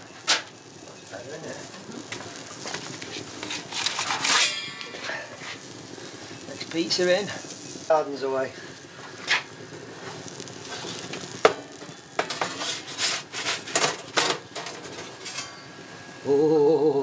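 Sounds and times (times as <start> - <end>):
steady hiss: 0.0 - 17.0
metal peel scraping steel shelf: 3.4 - 5.6, 12.2 - 15.6.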